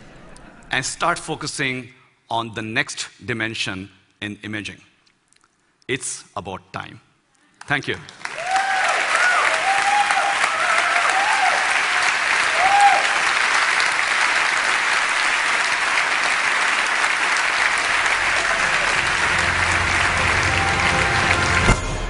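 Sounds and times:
audience applauding: 8.0s - 22.0s
whoops: 8.4s - 13.3s, 18.1s - 19.5s, 20.2s - 21.7s
low music: 17.6s - 22.0s.

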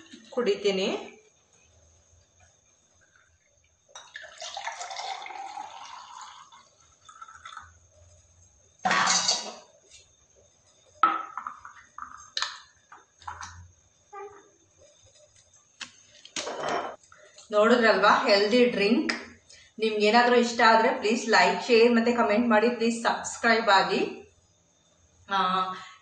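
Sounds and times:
juice pouring into glass bottle: 3.0s - 8.3s
glassware and utensils clattering: 8.9s - 9.6s, 16.4s - 17.0s.

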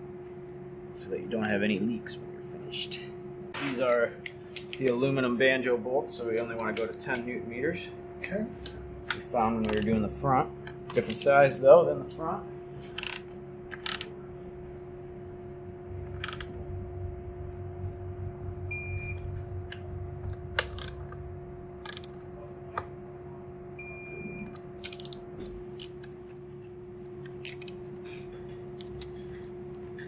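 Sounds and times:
steady hum: 0.0s - 30.0s
torque wrench beeping: 18.7s - 19.2s, 23.8s - 25.2s
tools and fittings clicking: 21.8s - 22.2s, 24.8s - 26.1s, 27.2s - 27.8s.

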